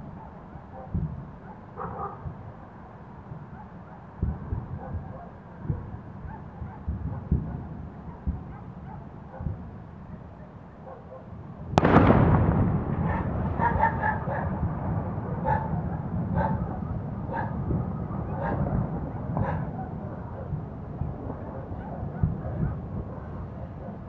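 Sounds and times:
low rumble of explosions: 0:00.0 - 0:10.8, 0:11.4 - 0:24.0
dull thuds of detonations: 0:11.7 - 0:19.8
sharp explosion blast: 0:11.8 - 0:16.5.

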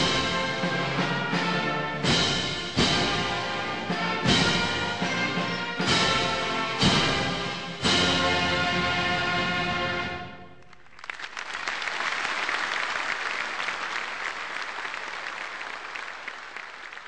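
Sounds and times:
orchestral chord: 0:00.0 - 0:10.5
audience applause: 0:10.6 - 0:17.0.

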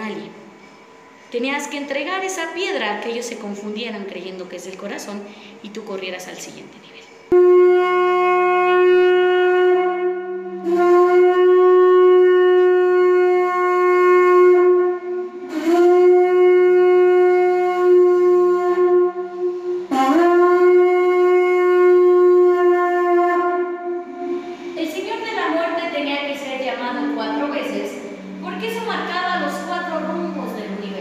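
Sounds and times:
conch shell trumpet blasts: 0:07.3 - 0:25.8.

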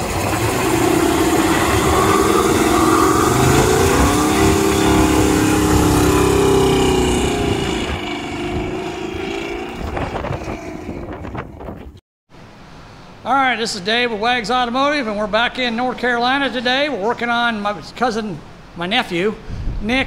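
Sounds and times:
car engine revving: 0:00.0 - 0:10.7.

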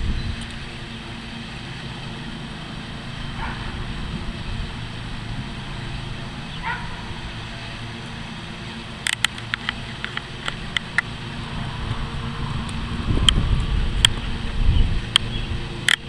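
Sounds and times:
low background rumble: 0:00.0 - 0:16.0
distant animal calls: 0:02.2 - 0:08.0.

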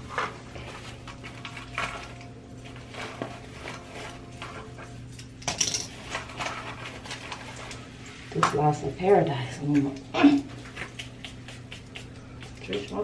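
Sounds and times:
small hard objects clattering: 0:00.0 - 0:08.5.

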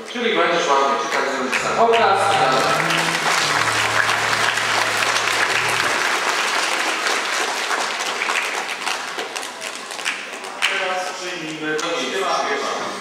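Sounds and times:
low steady tone: 0:01.6 - 0:06.2
children applauding: 0:01.6 - 0:10.8.

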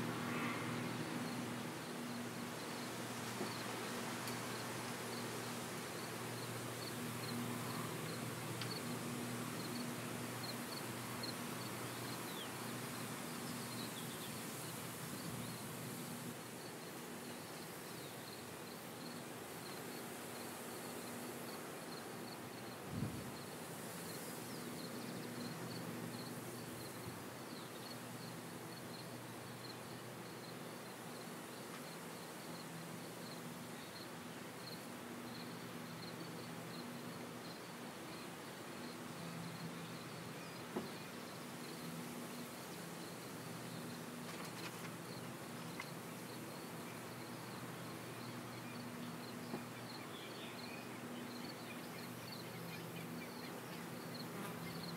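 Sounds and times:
distant engines droning: 0:00.0 - 0:31.6
insect chirping: 0:00.0 - 0:54.9.

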